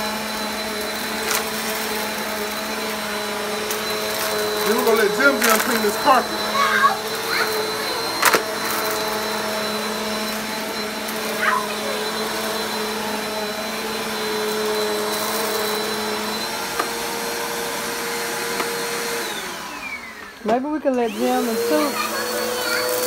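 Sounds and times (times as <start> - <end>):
vacuum cleaner running on carpet: 0.0 - 23.0.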